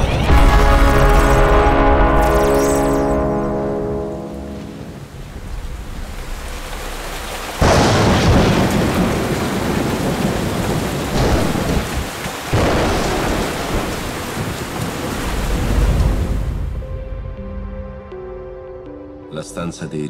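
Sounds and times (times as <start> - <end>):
steady rain: 0.0 - 17.0
thunder claps rumbling: 4.8 - 16.8.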